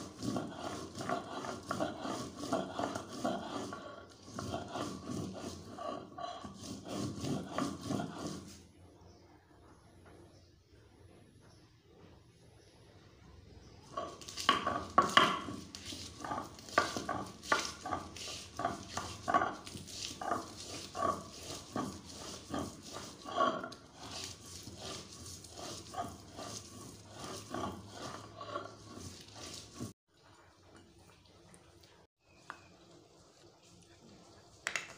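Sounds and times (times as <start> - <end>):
stone roller grinding on stone: 0.0 - 8.7, 13.8 - 30.0.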